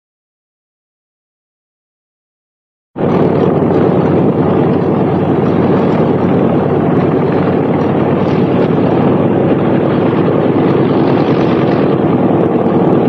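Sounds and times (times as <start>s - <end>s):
piston aircraft engines droning: 3.0s - 13.0s.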